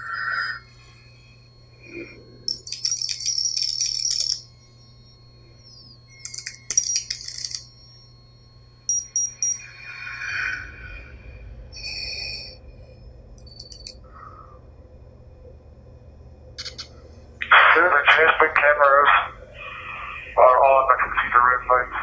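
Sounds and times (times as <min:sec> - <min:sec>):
electronic beeps and chirps: 0:00.0 - 0:10.2
low hum: 0:00.0 - 0:22.0.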